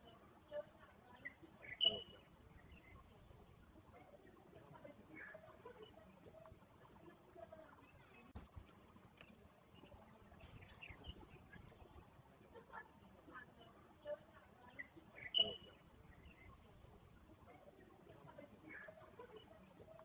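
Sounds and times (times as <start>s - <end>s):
faint distant voices: 0.0s - 20.0s
steady high-pitched whine: 0.0s - 20.0s.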